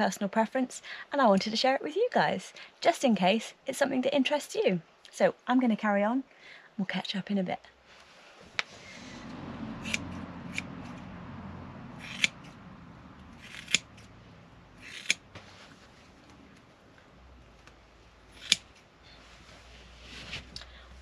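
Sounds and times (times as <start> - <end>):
scissors snipping foam: 12.0 - 12.5, 13.4 - 14.0, 14.8 - 15.2, 18.3 - 18.8.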